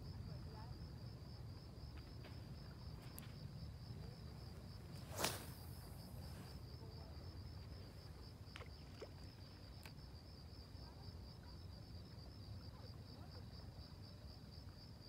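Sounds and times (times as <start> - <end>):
crickets chirping: 0.0 - 15.0
fishing rod swish: 5.0 - 5.9
fishing line hissing out: 5.0 - 6.5.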